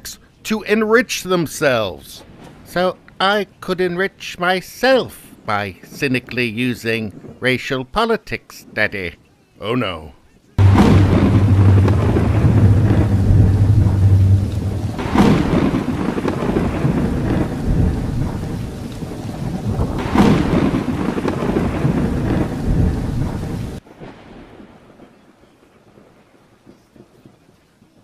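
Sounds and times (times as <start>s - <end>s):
steady rain hiss: 0.0s - 28.0s
low steady hum: 10.6s - 18.3s
loud thunderclaps: 10.6s - 25.1s
rumbling thunder: 10.6s - 26.4s.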